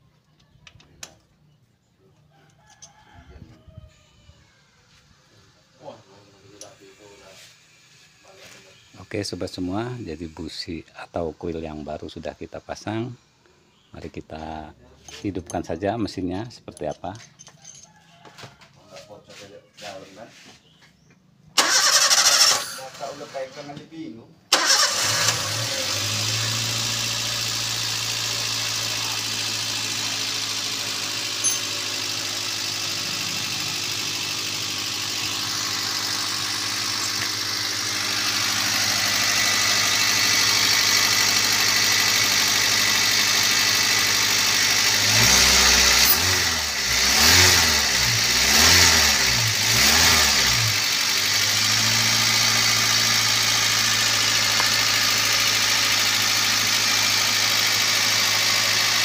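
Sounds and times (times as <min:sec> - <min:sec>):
engine revving: 0:21.6 - 0:23.5, 0:24.5 - 0:59.0
car engine idling: 0:24.5 - 0:59.0.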